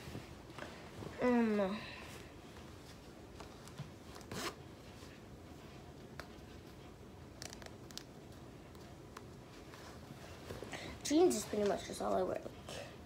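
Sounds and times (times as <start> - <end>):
clothes rustling: 2.0 - 12.4.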